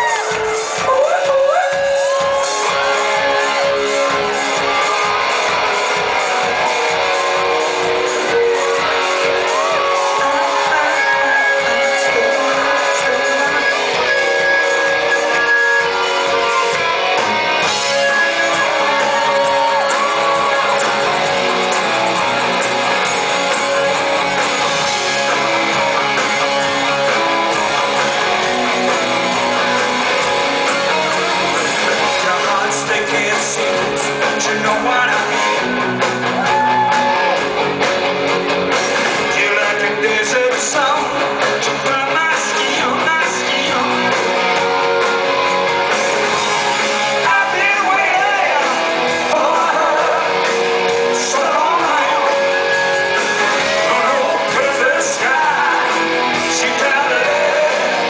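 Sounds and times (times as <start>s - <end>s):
rock band playing live: 0.0s - 58.0s.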